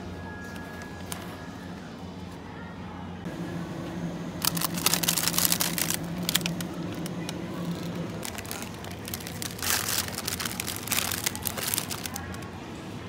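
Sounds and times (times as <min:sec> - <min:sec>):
steady low hum: 0:00.0 - 0:13.0
plastic packaging crinkling: 0:04.4 - 0:12.5.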